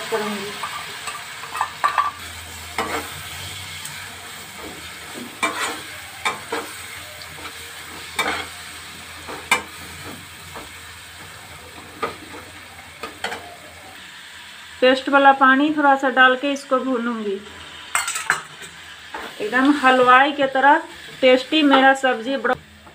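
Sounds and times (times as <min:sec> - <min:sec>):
onions sizzling in a pan: 0:00.0 - 0:22.9
metal spatula scraping pan: 0:00.5 - 0:09.9.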